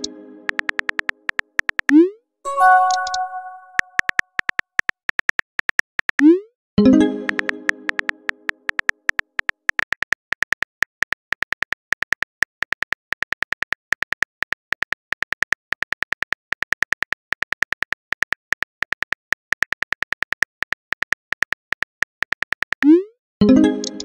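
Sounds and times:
phone keyboard clicks: 0.5s - 2.0s, 7.3s - 22.8s.

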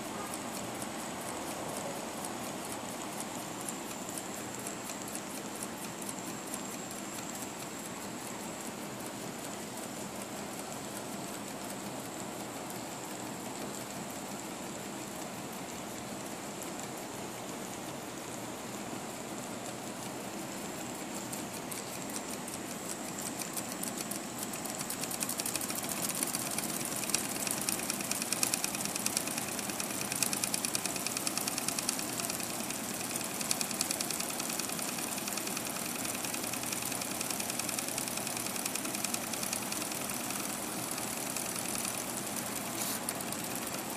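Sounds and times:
steam engine mechanical chatter: 20.0s - 43.9s
steam hiss: 25.0s - 43.9s.

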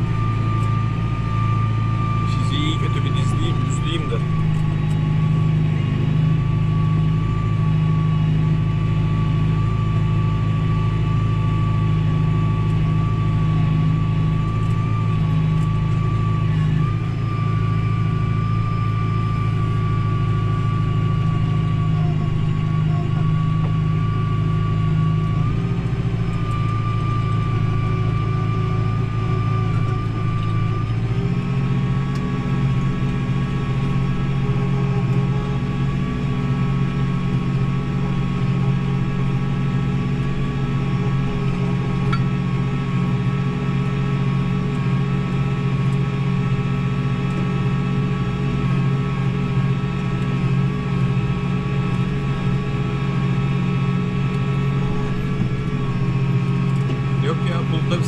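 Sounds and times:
steady high whine: 0.0s - 58.0s
tractor diesel engine: 0.0s - 58.0s.

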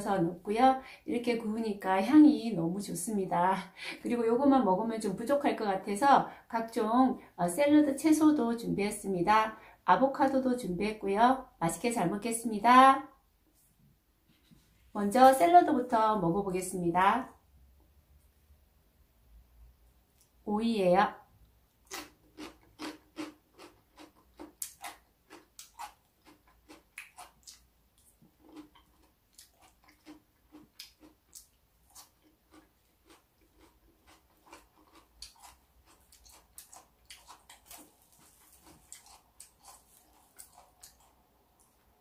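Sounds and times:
person chewing crunchy vegetables: 21.7s - 42.0s.

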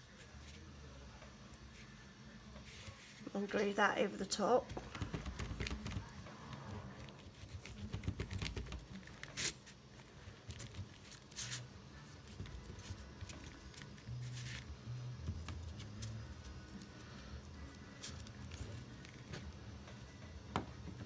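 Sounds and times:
glue stick rubbing on paper: 4.7s - 9.8s.

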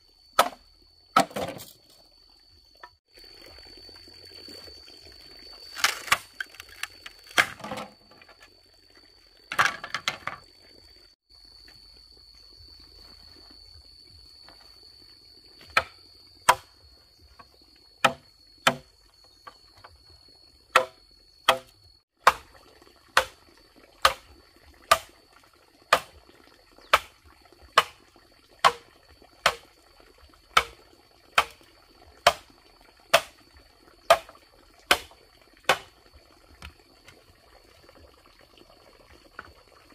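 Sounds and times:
machete chopping bamboo: 0.4s - 0.6s, 15.7s - 16.7s, 18.0s - 18.9s, 20.7s - 22.5s, 23.2s - 23.4s, 24.0s - 24.2s, 24.9s - 25.1s, 25.9s - 26.1s, 26.9s - 27.2s, 27.8s - 28.0s, 28.6s - 28.8s, 29.4s - 29.7s, 30.6s - 30.8s, 31.4s - 31.6s, 32.2s - 32.5s, 33.1s - 33.4s, 34.1s - 35.1s, 35.7s - 35.9s.

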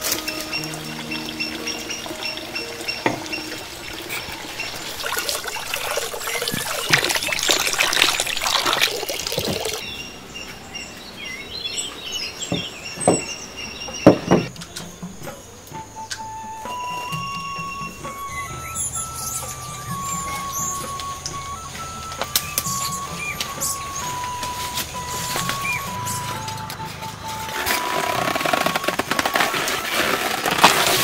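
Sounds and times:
birds chirping: 0.0s - 31.0s
tap water pouring into a bowl: 3.0s - 9.8s.

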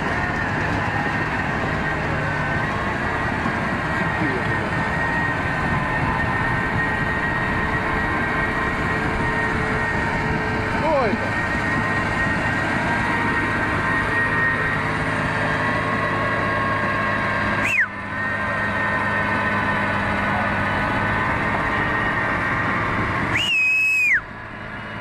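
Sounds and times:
excavator diesel engine running: 0.0s - 25.0s
sharp whistle: 17.6s - 18.0s, 23.3s - 24.3s.

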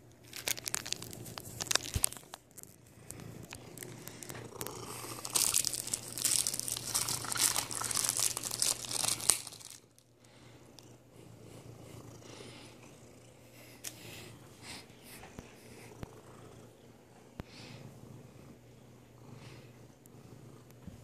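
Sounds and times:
cellophane crinkling: 0.1s - 10.1s.

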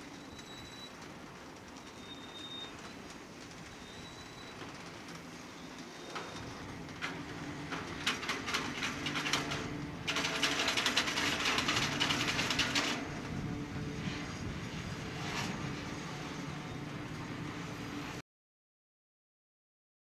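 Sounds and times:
low rumble of train: 0.0s - 18.2s
freight car wheels clicking: 7.7s - 13.0s.

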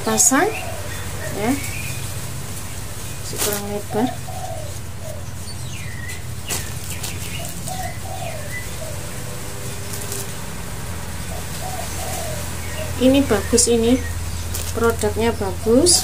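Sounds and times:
birds chirping and cooing: 0.0s - 16.0s
steady low hum: 0.0s - 16.0s.

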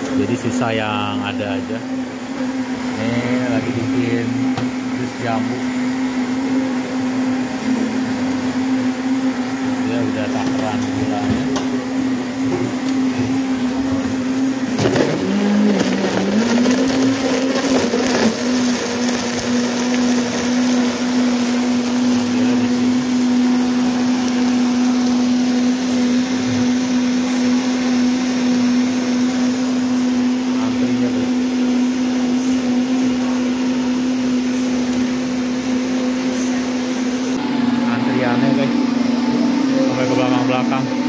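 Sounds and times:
electric blender running: 0.0s - 41.0s
knocking in blender: 4.4s - 4.9s.

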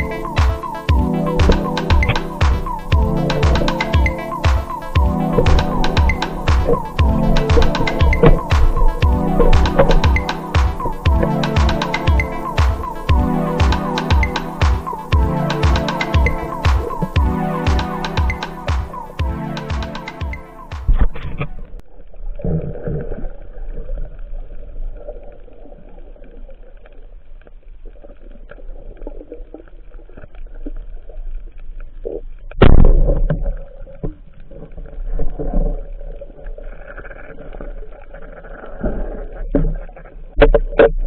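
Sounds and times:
muffled underwater rumble: 20.9s - 41.0s.

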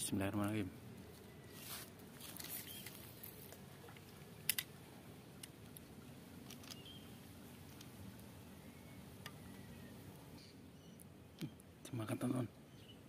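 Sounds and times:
soft rustles: 1.1s - 4.2s.

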